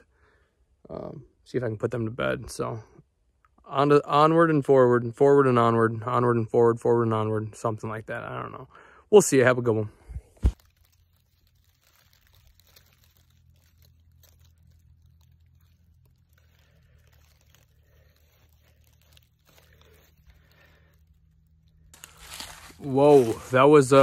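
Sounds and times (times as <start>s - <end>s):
footsteps crunching dry leaves: 10.4s - 24.0s.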